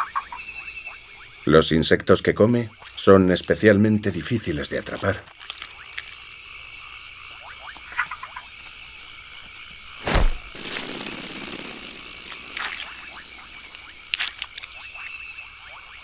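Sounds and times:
frogs chirping: 0:00.0 - 0:10.0, 0:10.6 - 0:16.0
high insect drone: 0:00.0 - 0:16.0
loud thump: 0:10.0 - 0:10.8
rustling swish: 0:10.0 - 0:14.8.

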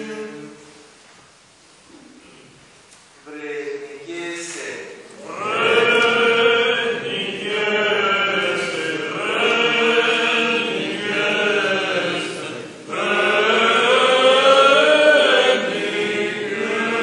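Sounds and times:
voices chanting long held notes: 0:05.2 - 0:17.0.

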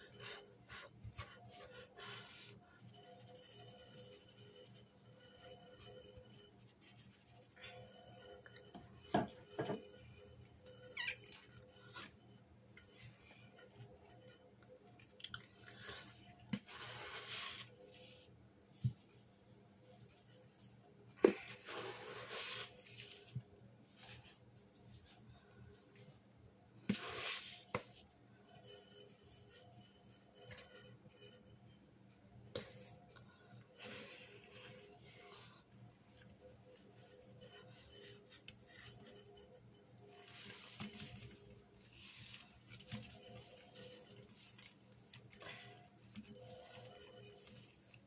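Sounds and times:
sponge squeezing damp powder: 0:15.7 - 0:19.0, 0:21.4 - 0:25.2.

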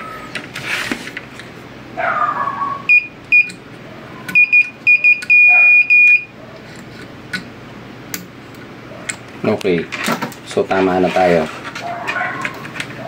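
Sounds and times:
multimeter beeping: 0:02.9 - 0:03.6, 0:04.3 - 0:06.3.

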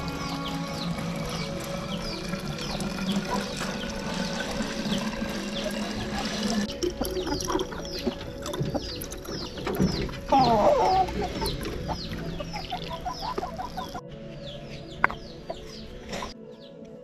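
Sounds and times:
chickens clucking: 0:00.0 - 0:16.4
chicks peeping: 0:00.0 - 0:16.4.

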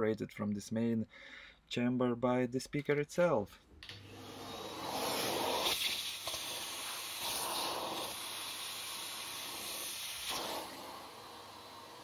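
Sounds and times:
vacuum nozzle air hissing: 0:04.0 - 0:12.0.

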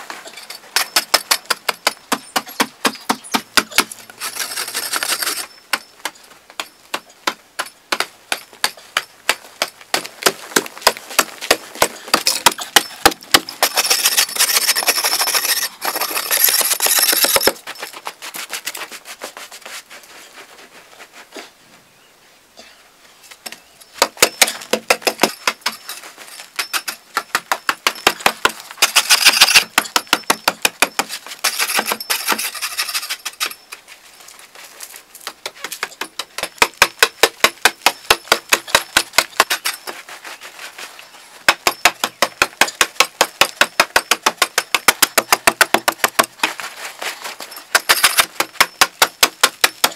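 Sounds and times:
soil scraping: 0:00.0 - 0:21.6, 0:23.9 - 0:49.9.

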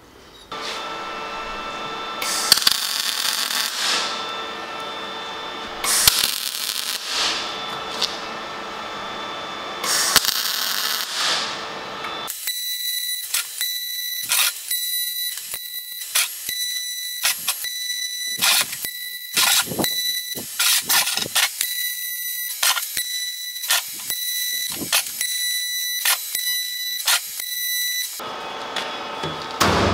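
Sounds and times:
high-pitched whine: 0:00.0 - 0:29.9
welding crackle: 0:02.2 - 0:04.9, 0:05.6 - 0:08.3, 0:09.8 - 0:28.2.

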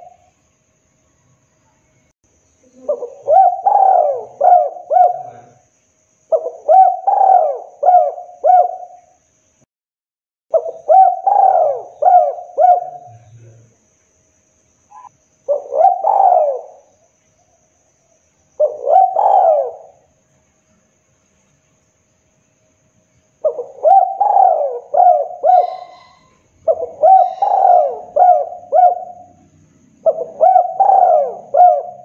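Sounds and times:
dove cooing: 0:02.6 - 0:05.6, 0:06.3 - 0:09.0, 0:10.5 - 0:13.6, 0:14.9 - 0:16.9, 0:18.6 - 0:20.1, 0:23.4 - 0:32.0.

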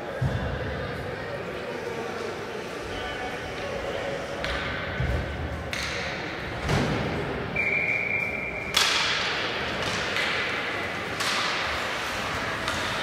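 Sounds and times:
hockey stick hitting puck: 0:05.7 - 0:07.1, 0:08.7 - 0:13.0.

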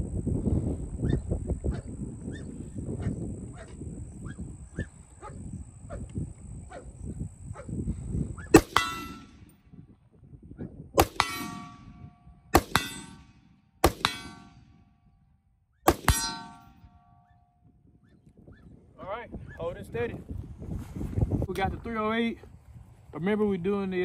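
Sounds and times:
rifle shots: 0:08.5 - 0:09.6, 0:11.0 - 0:14.9, 0:15.9 - 0:16.9
clang of steel target hit: 0:08.6 - 0:09.5, 0:11.0 - 0:14.8, 0:15.9 - 0:17.2.

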